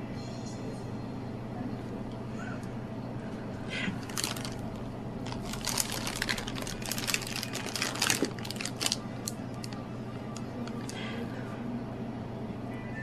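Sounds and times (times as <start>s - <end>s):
steady low hum: 0.0s - 13.0s
crinkling and crackling clicks: 4.0s - 11.0s.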